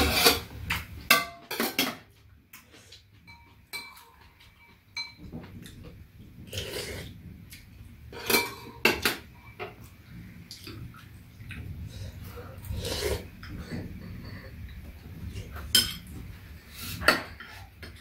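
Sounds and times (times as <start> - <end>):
spoon and chopsticks clinking on bowls: 3.2 - 5.5, 8.2 - 9.7, 15.6 - 16.1.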